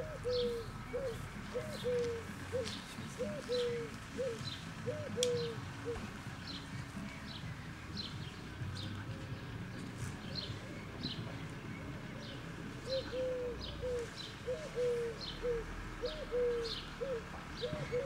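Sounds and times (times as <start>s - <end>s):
pigeon cooing: 0.0s - 6.2s, 12.2s - 18.0s.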